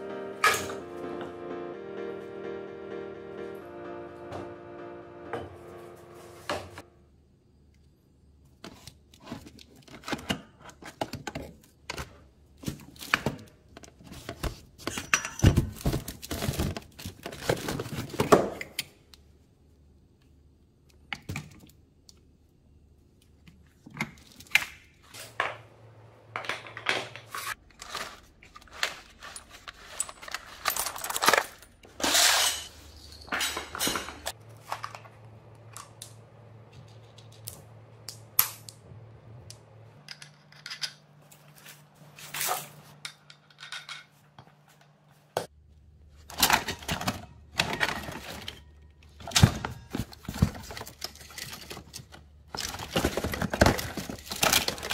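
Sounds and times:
metal parts clinking in plastic tub: 26.4s - 35.0s
parts shifting in cardboard box: 49.4s - 54.9s.

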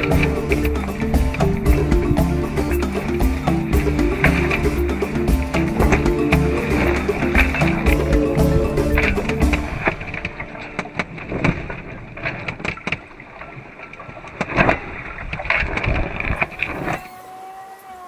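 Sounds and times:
steady tone: 0.0s - 11.8s
boat knocking: 0.0s - 13.1s
water noise: 0.0s - 18.0s.

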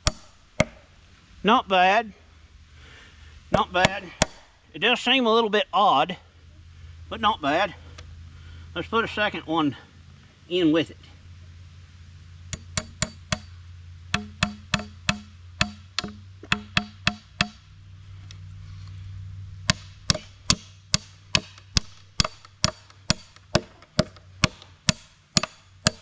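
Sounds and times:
hatchet hammering nail into wood: 0.0s - 0.8s, 3.5s - 4.4s, 12.5s - 13.5s, 14.1s - 17.6s, 19.6s - 26.0s.

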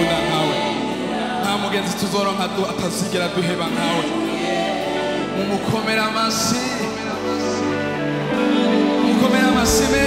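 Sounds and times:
guitar: 0.0s - 10.0s
keyboard: 0.0s - 10.0s
voices singing: 0.0s - 10.0s
drums: 9.7s - 10.0s.

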